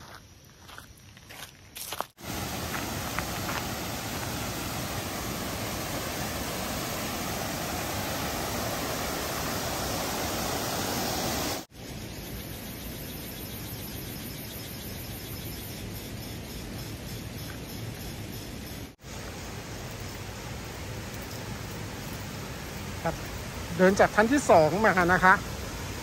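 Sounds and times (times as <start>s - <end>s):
waterfall rushing: 2.2s - 11.7s.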